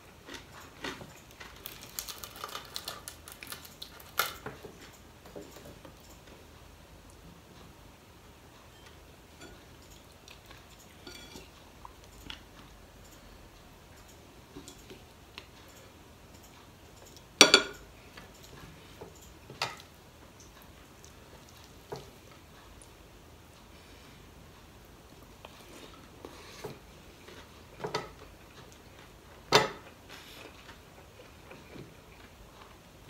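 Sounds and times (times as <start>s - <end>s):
chewing: 0.1s - 5.0s, 9.5s - 13.3s, 18.1s - 23.0s, 25.1s - 29.2s, 29.8s - 32.8s
fingers and food on plates: 0.1s - 33.0s.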